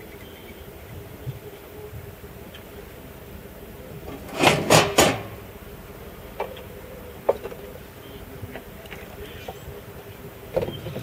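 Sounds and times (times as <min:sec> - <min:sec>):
loud clunks in a box: 0:04.2 - 0:05.4.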